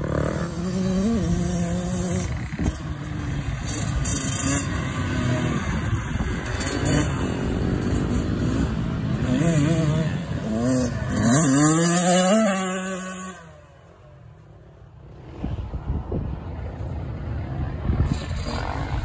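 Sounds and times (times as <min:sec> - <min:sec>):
dirt bike engine revving: 0:00.0 - 0:14.0, 0:18.0 - 0:19.0.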